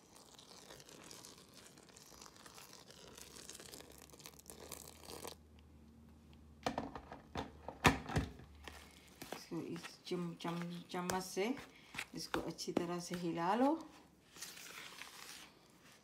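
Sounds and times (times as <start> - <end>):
water poured onto flour: 0.0 - 5.4.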